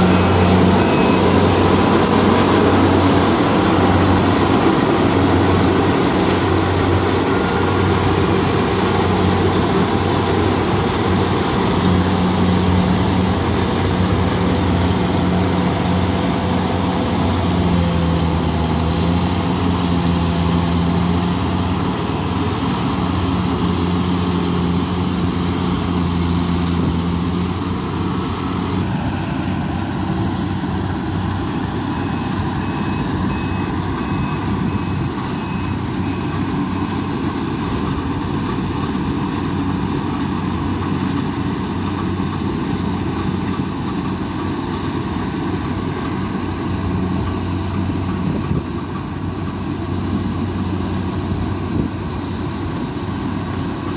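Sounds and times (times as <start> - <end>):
high beeping: 0.0 - 8.6
combine harvester running: 0.0 - 53.9.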